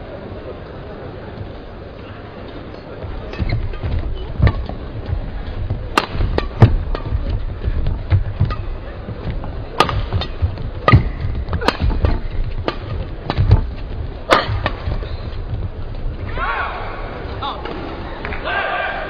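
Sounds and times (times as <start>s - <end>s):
steady low rumble: 0.0s - 18.4s
rackets striking shuttlecock: 3.3s - 15.7s.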